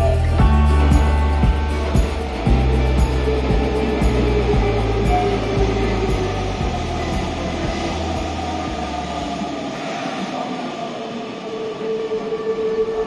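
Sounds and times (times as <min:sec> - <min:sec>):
steady tone: 0:00.0 - 0:11.9
train equipment low hum: 0:00.0 - 0:13.0.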